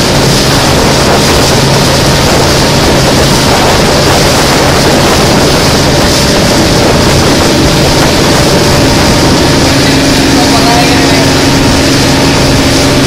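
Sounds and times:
boat engine running: 0.0 - 13.0
rush of water and wind: 0.0 - 13.0.

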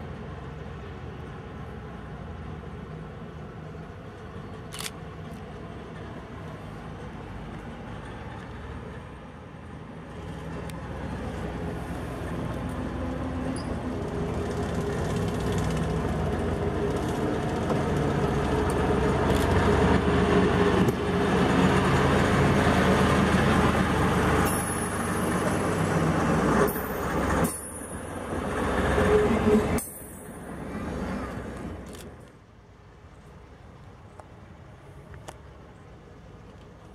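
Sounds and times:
locomotive engine running: 10.0 - 32.3
caboose rumbling on rails: 10.1 - 32.3.

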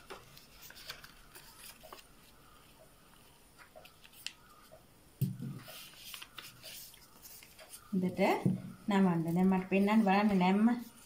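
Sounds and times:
paper rustling and crinkling: 0.0 - 4.7, 5.6 - 8.0.

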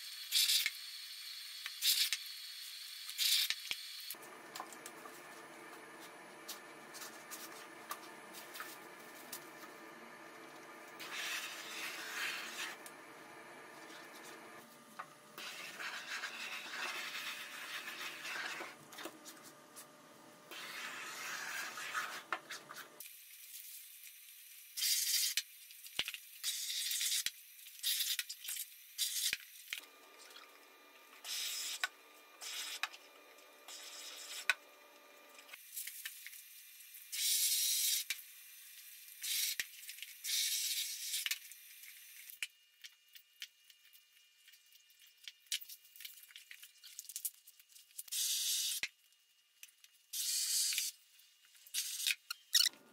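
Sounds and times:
rubbing and handling noise: 4.2 - 10.0, 10.9 - 13.0, 13.7 - 23.0.

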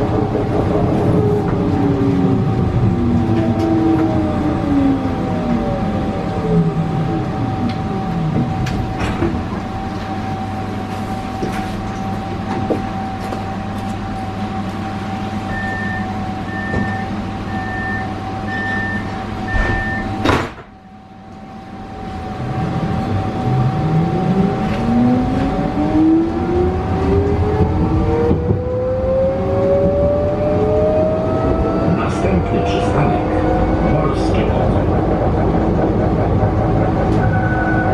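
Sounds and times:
stationary tram humming: 0.0 - 37.9
tram doors shutting: 0.0 - 37.9
tram motor whine: 0.0 - 37.9
door warning beeps: 15.5 - 20.3.

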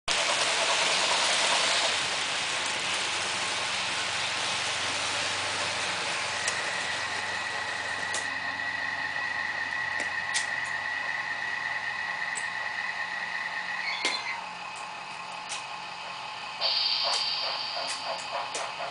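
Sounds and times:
model trains running on track: 0.1 - 18.9
high motor whine: 5.4 - 18.8.

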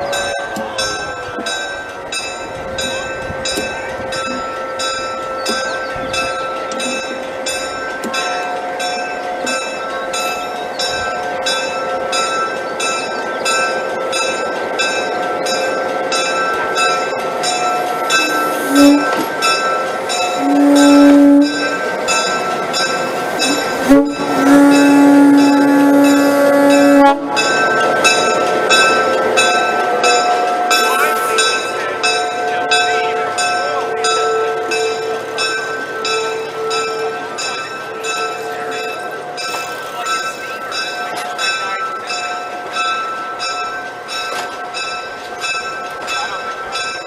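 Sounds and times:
locomotive air horn blasts: 18.1 - 19.3, 20.3 - 21.8, 23.5 - 27.4.

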